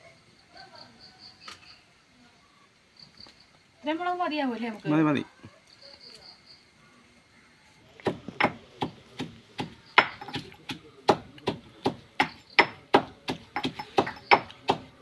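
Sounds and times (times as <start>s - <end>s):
pestle pounding chillies: 8.0s - 15.0s.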